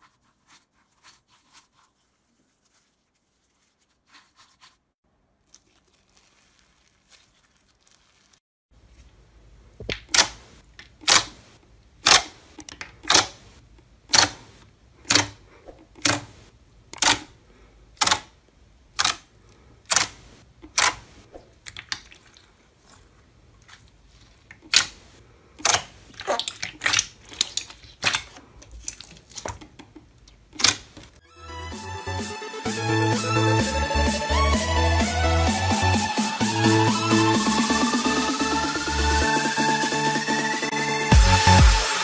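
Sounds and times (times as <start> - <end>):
upbeat electronic music: 31.2 - 42.0.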